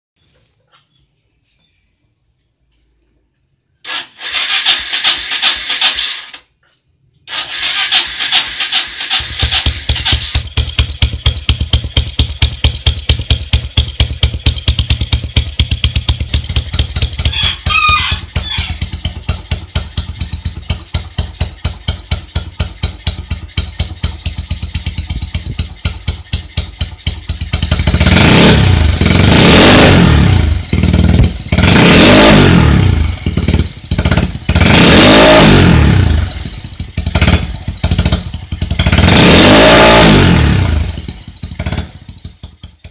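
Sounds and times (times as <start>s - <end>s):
motorcycle engine revving: 3.8s - 6.4s, 7.3s - 42.9s
motorcycle engine idling: 9.0s - 42.9s.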